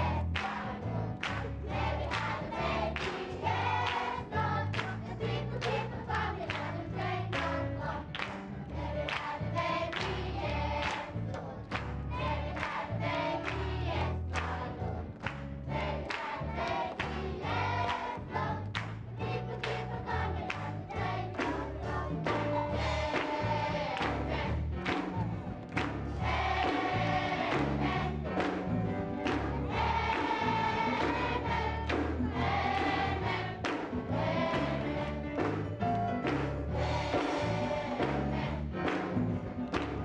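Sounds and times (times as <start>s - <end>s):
children's choir singing: 0.0s - 40.0s
hands clapping: 0.2s - 40.0s
instrumental backing: 11.8s - 40.0s.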